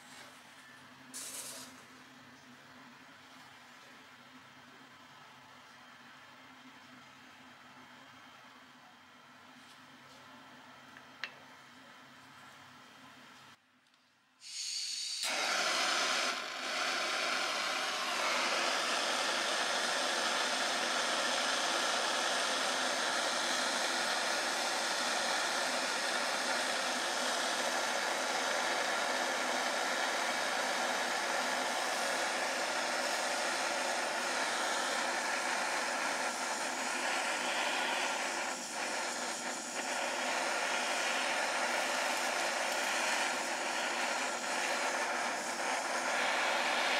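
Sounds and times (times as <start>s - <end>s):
blowtorch flame hissing: 1.2s - 1.8s, 14.4s - 46.9s.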